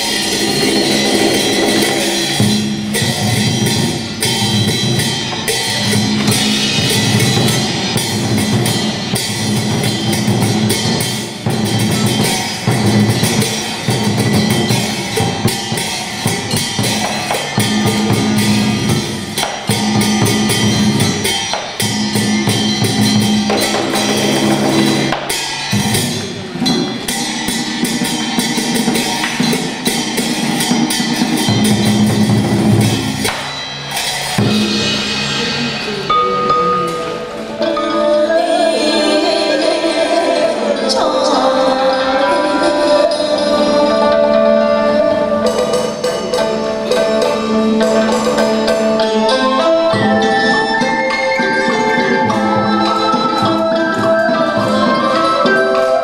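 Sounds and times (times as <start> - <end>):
busy drumming: 0.0 - 56.0
cymbals: 0.0 - 56.0.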